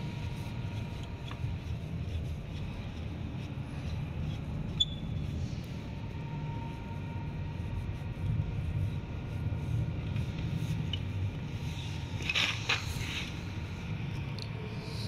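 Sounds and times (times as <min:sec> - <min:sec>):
steady low hum: 0:00.0 - 0:15.0
tools scraping and rustling: 0:11.7 - 0:13.5.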